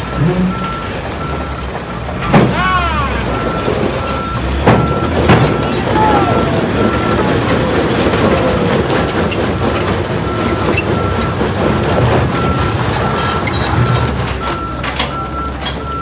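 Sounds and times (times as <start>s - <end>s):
heavy machinery engine rumble: 0.0s - 16.0s
reversing alarm beeping: 0.0s - 16.0s
sharp knocks: 4.6s - 5.7s.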